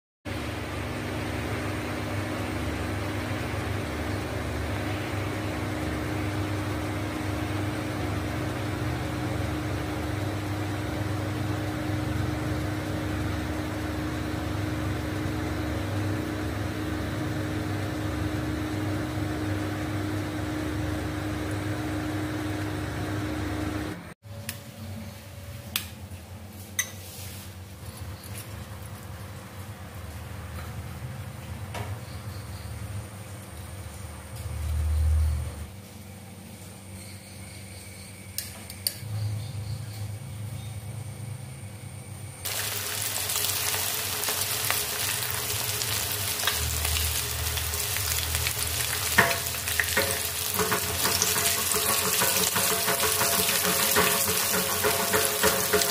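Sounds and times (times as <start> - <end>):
machine hum with held tone: 0.3 - 25.8, 30.4 - 55.9.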